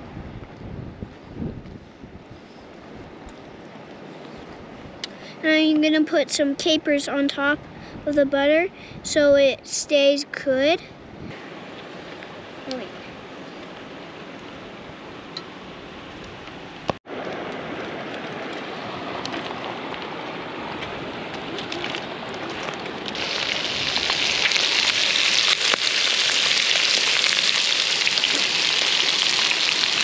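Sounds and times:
small crackles: 16.2s - 30.0s
fish sizzling in a pan: 23.2s - 30.0s.

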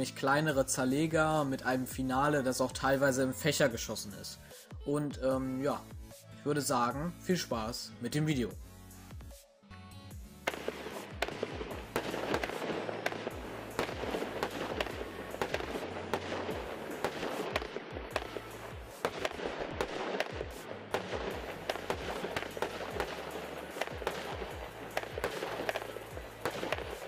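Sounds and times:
small firework shells bursting: 10.4s - 27.0s
firework launch thumps: 10.5s - 27.0s.

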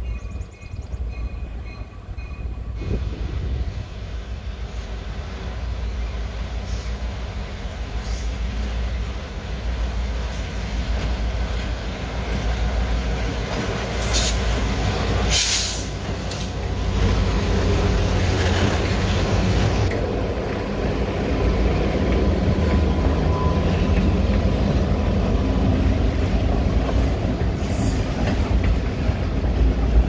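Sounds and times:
diesel locomotive engines rumbling: 0.0s - 30.0s
air hiss bursts: 15.3s - 16.4s.

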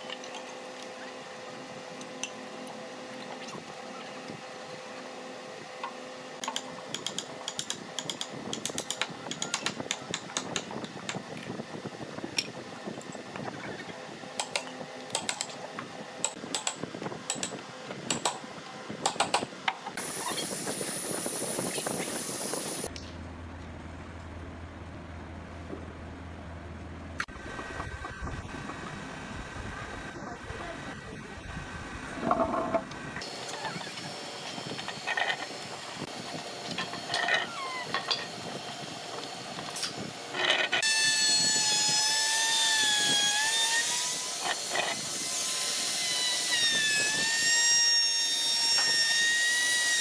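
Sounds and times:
workshop hum: 0.0s - 50.0s.

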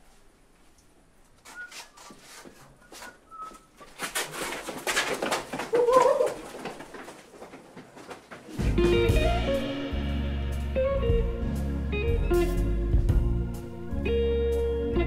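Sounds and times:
scuffling footsteps: 0.0s - 9.4s.

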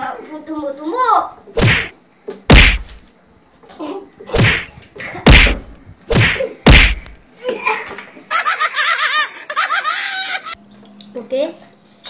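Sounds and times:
punches thumping on body: 1.6s - 1.9s, 2.5s - 3.0s, 4.3s - 4.7s, 5.3s - 7.2s.

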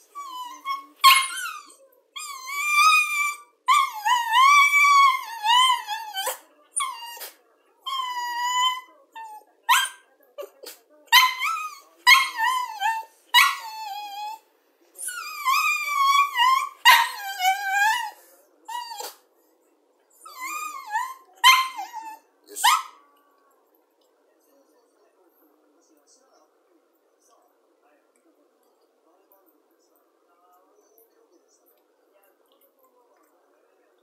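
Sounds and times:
dog whining: 0.1s - 10.5s, 11.1s - 14.4s, 15.0s - 19.2s, 20.1s - 23.0s
dog yipping: 0.2s - 10.0s, 11.1s - 14.4s, 15.0s - 19.2s, 20.2s - 23.0s.

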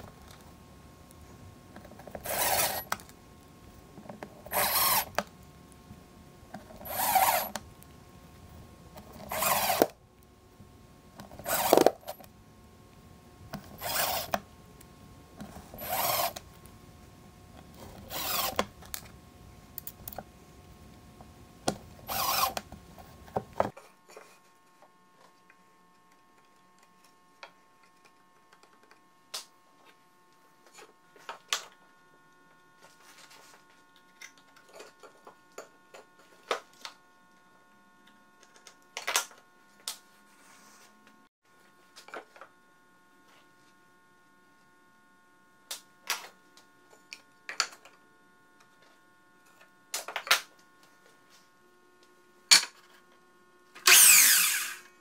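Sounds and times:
cordless drill driving screws: 2.2s - 3.0s, 4.5s - 5.2s, 6.8s - 7.6s, 9.2s - 10.0s, 11.4s - 12.2s, 13.8s - 14.4s, 15.8s - 16.4s, 18.0s - 18.7s, 22.0s - 22.6s, 53.8s - 54.9s.

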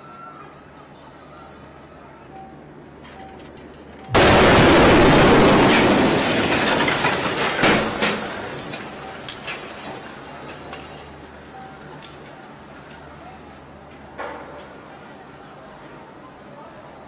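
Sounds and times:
sharp cracks and clatters: 3.0s - 11.1s
loud explosion blast: 4.1s - 8.5s.

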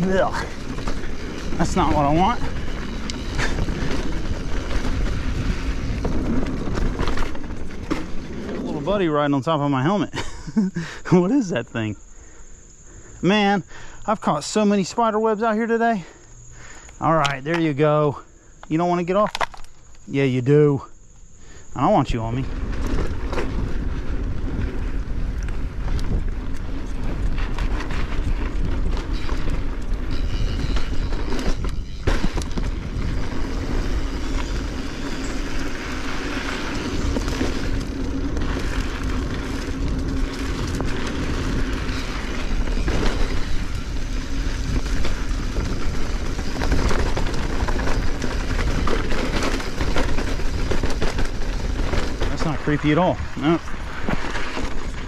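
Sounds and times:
bike tyres rumbling on dirt: 0.0s - 55.0s
bike knocks and rattles: 0.1s - 8.8s, 22.6s - 53.1s, 53.8s - 55.0s.

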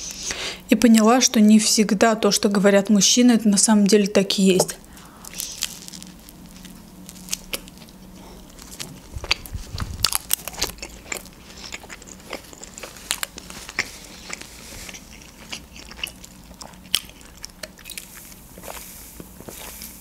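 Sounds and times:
bread crunching while chewing: 5.0s - 20.0s.

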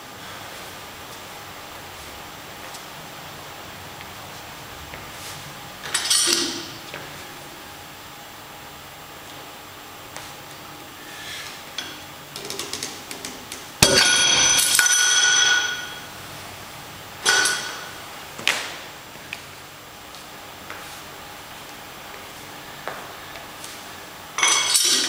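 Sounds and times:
metal weight clanging and ringing: 13.8s - 16.0s, 17.2s - 18.0s, 24.4s - 25.0s.

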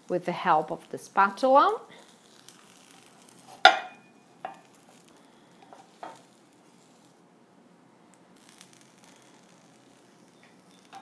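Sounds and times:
spatula knocking and scraping pan: 3.6s - 4.6s.

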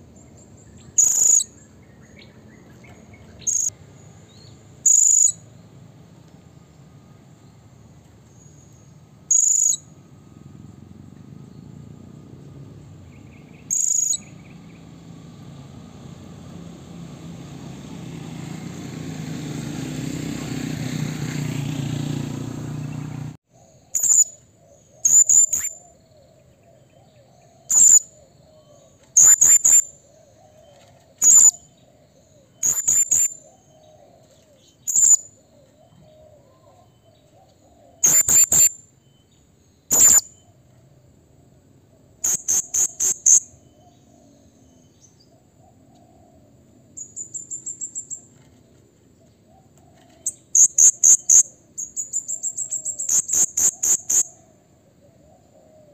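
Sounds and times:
parrot shrill calls: 1.0s - 1.5s, 25.0s - 25.8s, 38.0s - 38.7s, 39.9s - 40.4s.

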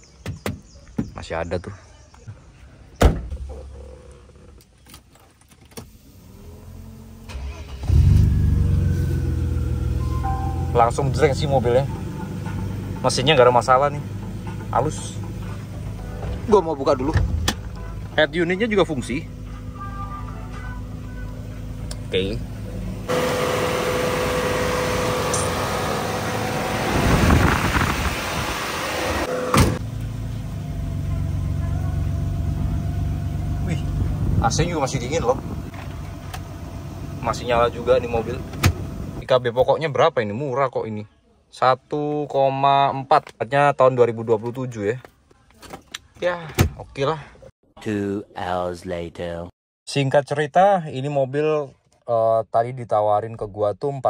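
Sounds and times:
sharp thump: 3.0s - 3.4s
car engine cranking and idling: 3.8s - 39.4s.

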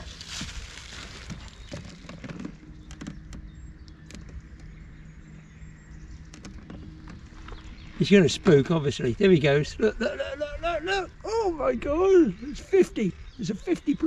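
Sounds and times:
electric motor hum: 0.0s - 14.0s
small clicks and knocks: 1.2s - 4.8s, 6.2s - 7.8s.

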